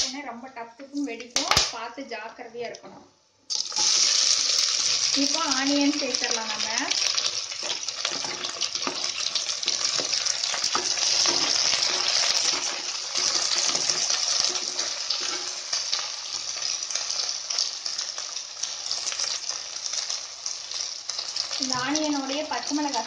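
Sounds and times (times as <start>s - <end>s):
onions sizzling in a pan: 3.5s - 23.0s
spoon clicking and scraping pan: 7.6s - 15.8s.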